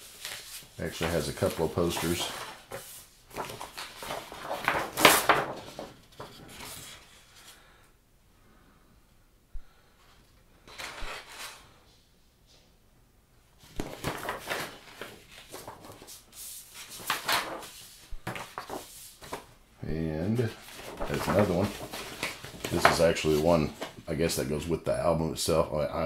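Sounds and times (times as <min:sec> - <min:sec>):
paper posters rustling: 0:00.0 - 0:07.6, 0:10.6 - 0:11.8, 0:13.6 - 0:19.5, 0:20.2 - 0:24.4.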